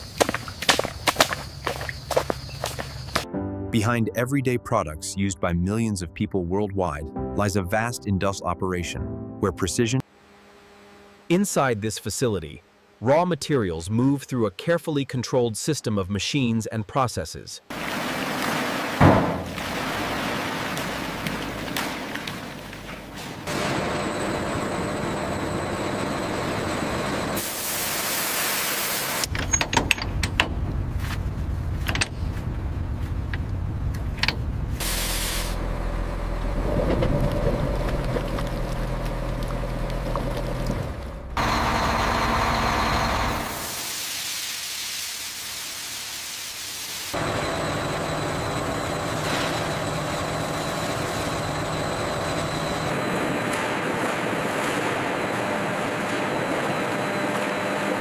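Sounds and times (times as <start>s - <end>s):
low motor hum with whine: 10.1s - 11.3s, 22.2s - 27.4s, 29.4s - 43.5s, 47.2s - 58.0s.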